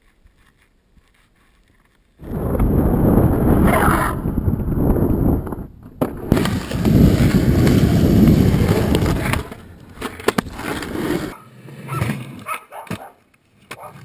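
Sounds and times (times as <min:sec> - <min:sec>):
skateboard wheels rolling on concrete: 0:00.0 - 0:14.0
skateboard clacks on ground: 0:06.0 - 0:14.0.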